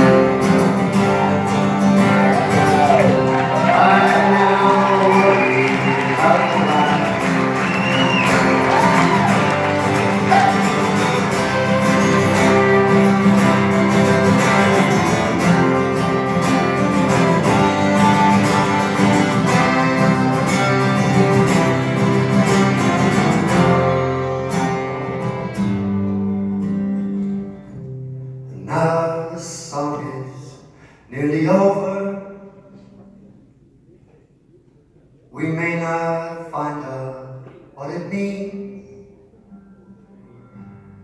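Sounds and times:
strummed acoustic guitar: 0.0s - 30.5s, 39.5s - 41.0s
violin: 2.1s - 25.7s
accordion: 5.7s - 26.0s.

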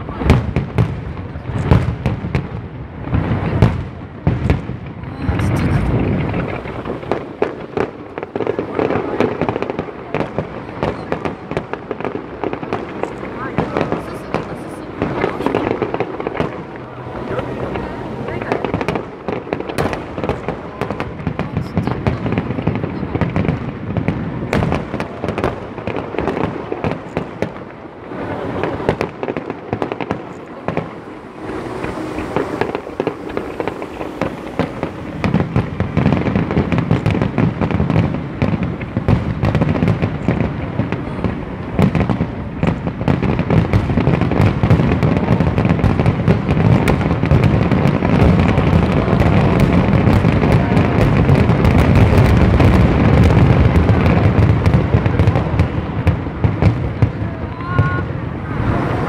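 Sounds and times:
fireworks crackling: 0.0s - 59.0s
fireworks shells bursting: 24.5s - 54.8s.

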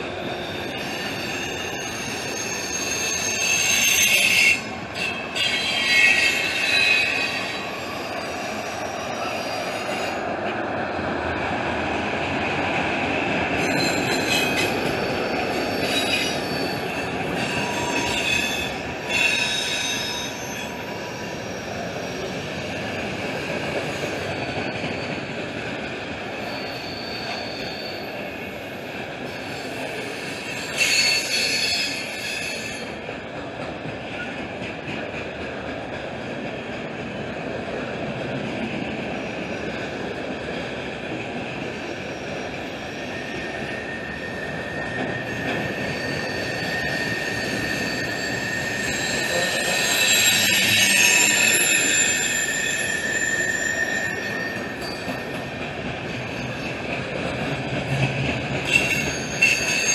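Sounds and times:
high wheel squeal: 0.0s - 10.3s, 13.6s - 33.0s, 41.7s - 56.9s, 57.9s - 59.9s
freight train wheels rumbling: 0.0s - 59.9s.

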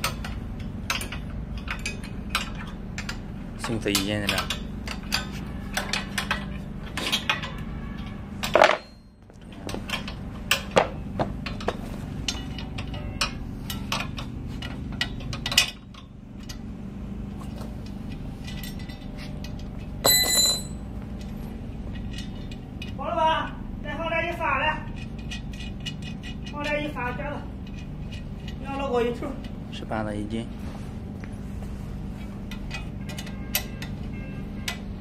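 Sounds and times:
steady low hum: 0.0s - 35.0s
wrench clinking on steel frame: 8.4s - 9.2s, 20.0s - 20.9s
loud metal clank: 20.1s - 20.8s.

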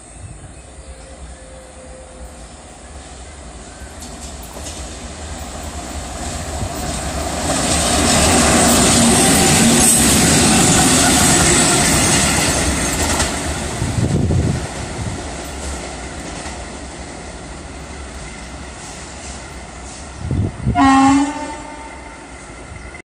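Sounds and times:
locomotives passing on track: 0.0s - 23.0s
wheels clicking over rail joints: 3.8s - 13.8s.

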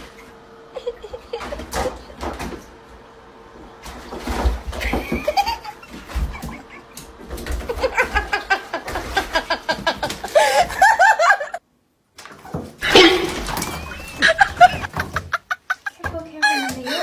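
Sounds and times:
person laughing: 0.7s - 2.2s, 4.8s - 7.0s, 7.6s - 11.6s, 12.8s - 17.0s.

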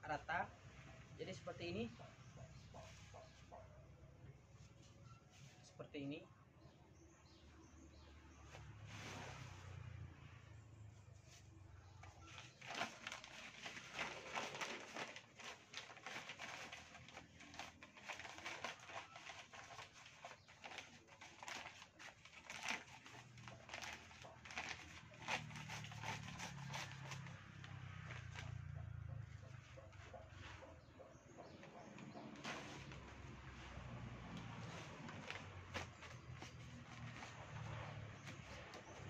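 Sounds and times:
plastic bag crinkling: 12.2s - 28.6s, 32.2s - 39.0s.

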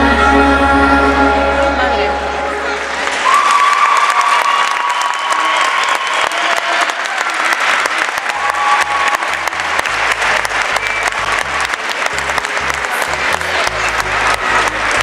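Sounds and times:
pulsing bass line: 0.0s - 3.0s, 9.4s - 15.0s
background music: 0.0s - 3.2s, 8.8s - 15.0s
audience applauding: 2.8s - 15.0s.

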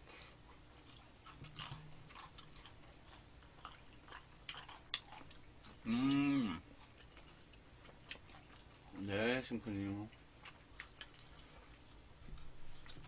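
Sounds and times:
chewing crispy fried chicken: 0.1s - 13.0s
person humming mmm: 5.8s - 6.6s.

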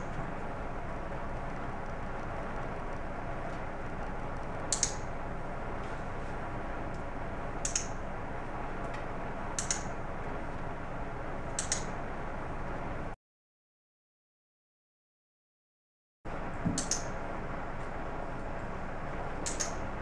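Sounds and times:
clicker double clicks: 9.6s - 9.9s, 11.6s - 11.9s, 16.7s - 17.1s, 19.4s - 19.8s.

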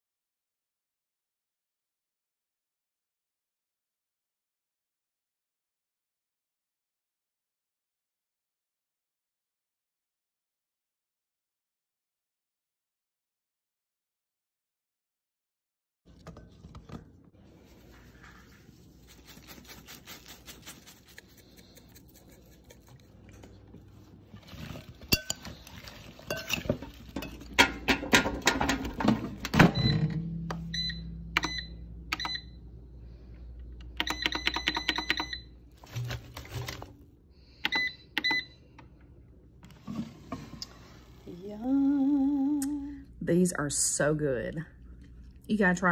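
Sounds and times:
squash slices clattering in metal basket: 24.4s - 30.6s
air fryer short high beeps: 29.6s - 32.6s.

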